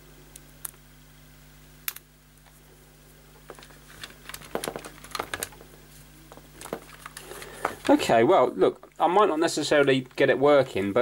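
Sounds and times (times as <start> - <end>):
plastic parts clicking and rattling: 3.5 - 5.6, 6.6 - 8.0.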